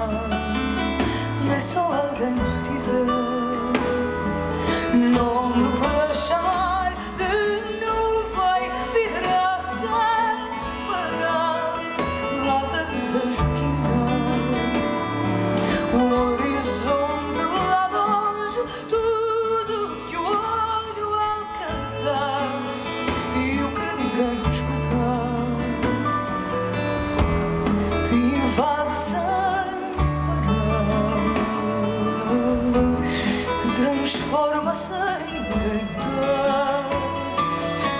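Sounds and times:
woman singing with vibrato: 0:00.0 - 0:25.9, 0:28.0 - 0:37.9
guitars: 0:00.0 - 0:37.9
bass notes: 0:21.8 - 0:34.4.

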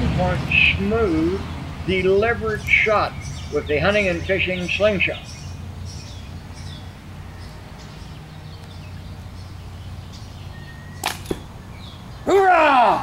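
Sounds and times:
arrow striking target: 0:11.0 - 0:11.5
slingshot bands snapping: 0:11.0 - 0:11.5.

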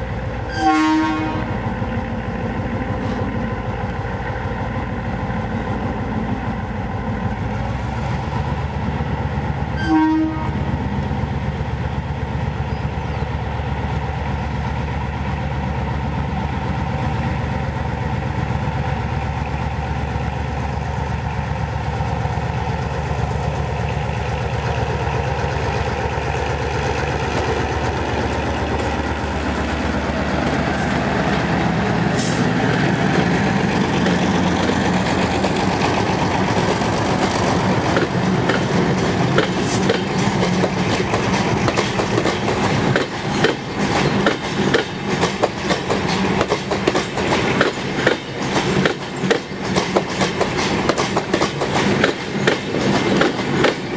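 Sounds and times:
diesel locomotive engine under load: 0:00.0 - 0:53.9
locomotive horn blast: 0:00.5 - 0:01.6, 0:09.8 - 0:10.7.

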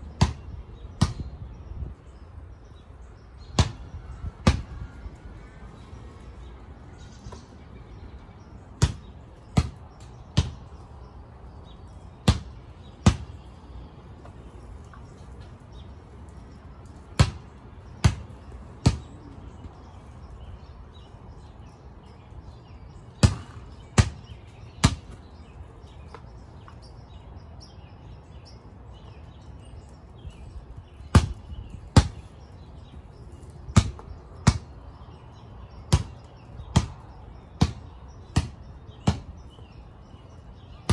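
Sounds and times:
basketball bouncing on concrete: 0:00.0 - 0:01.5, 0:03.4 - 0:05.0, 0:08.7 - 0:11.0, 0:12.1 - 0:15.1, 0:16.8 - 0:19.8, 0:23.1 - 0:25.3, 0:31.0 - 0:32.4, 0:33.4 - 0:34.8, 0:35.8 - 0:39.4.

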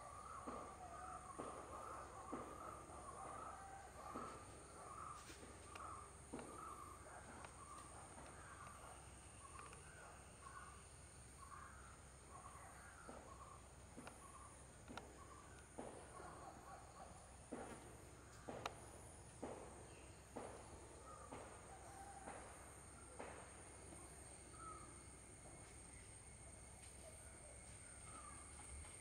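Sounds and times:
soft repeated chirps: 0:01.4 - 0:17.8.

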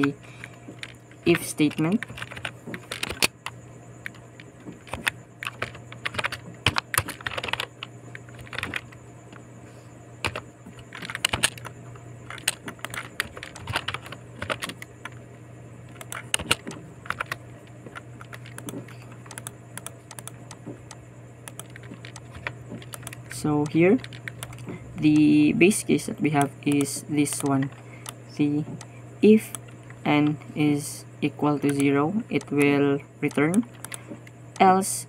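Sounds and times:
steady low hum: 0:00.0 - 0:35.0
typing on computer keyboard: 0:00.8 - 0:09.0, 0:10.2 - 0:15.2, 0:15.9 - 0:25.3, 0:26.3 - 0:28.2.

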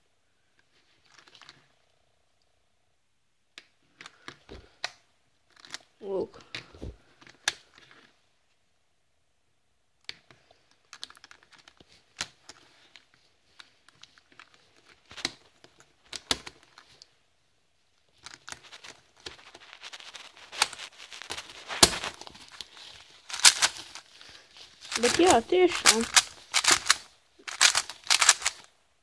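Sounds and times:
plastic puzzle cube clicks: 0:23.3 - 0:24.0, 0:24.9 - 0:28.7.

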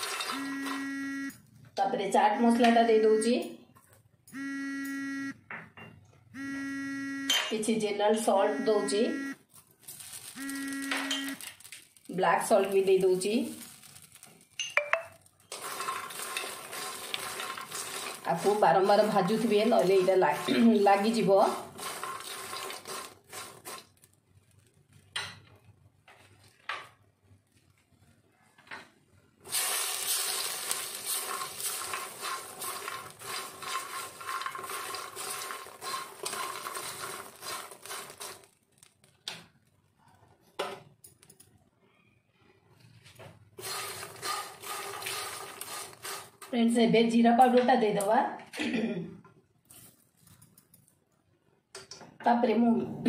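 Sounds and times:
seeds rattling in pan: 0:00.0 - 0:00.4, 0:09.5 - 0:25.0, 0:29.5 - 0:39.3, 0:43.6 - 0:46.6
spatula scraping metal pan: 0:15.5 - 0:23.8, 0:30.7 - 0:38.5, 0:43.6 - 0:46.5.

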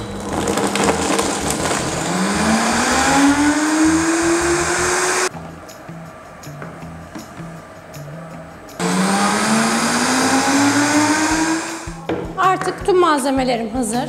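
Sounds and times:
blender motor spinning up: 0:00.2 - 0:05.3, 0:08.8 - 0:12.0.

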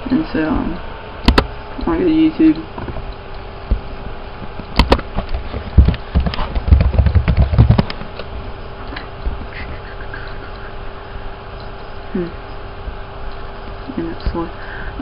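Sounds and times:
faint steady hum: 0:00.0 - 0:15.0
sharp clicks: 0:01.2 - 0:01.9
computer keyboard typing: 0:05.8 - 0:08.0.

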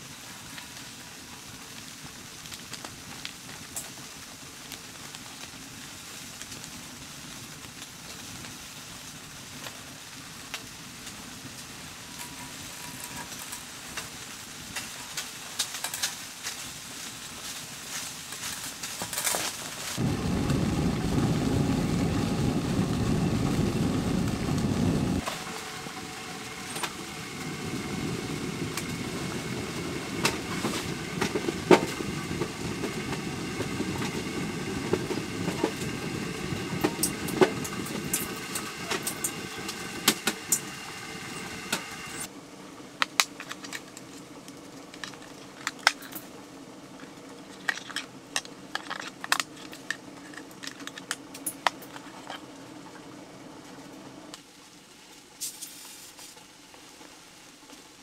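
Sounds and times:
wood stove fire crackling: 0:00.0 - 0:58.0
low rushing noise: 0:20.0 - 0:42.3.

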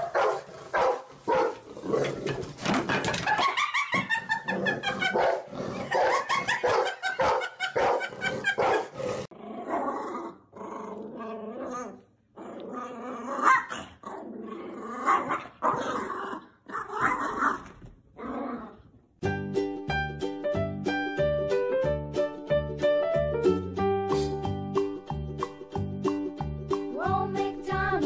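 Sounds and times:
dogs growling and barking: 0:00.0 - 0:18.9
music: 0:19.2 - 0:28.0.

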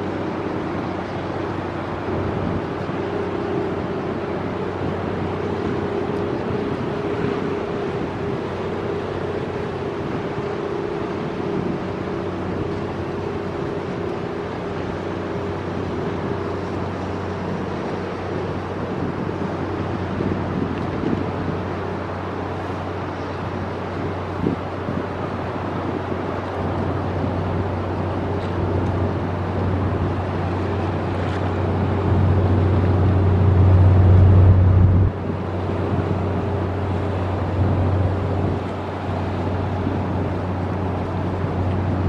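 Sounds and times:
wind rumble on microphone: 0:00.0 - 0:42.0
ship machinery droning: 0:26.6 - 0:42.0.

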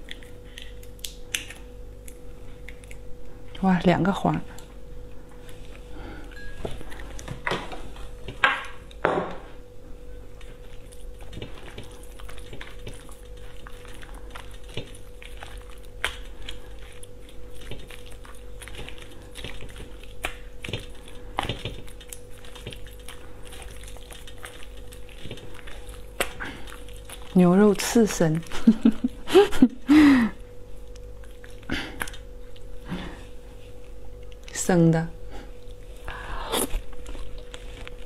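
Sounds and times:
faint steady hum: 0:00.0 - 0:38.0
chopsticks squishing raw meat: 0:10.3 - 0:29.6.

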